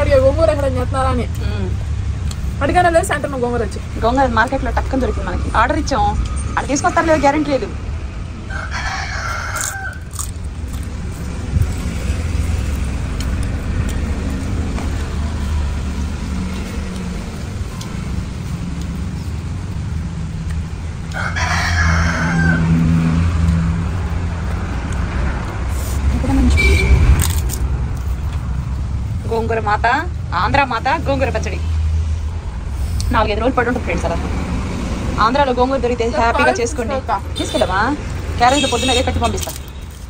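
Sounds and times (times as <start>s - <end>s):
rooster crowing: 8.4s - 10.2s, 21.1s - 23.3s.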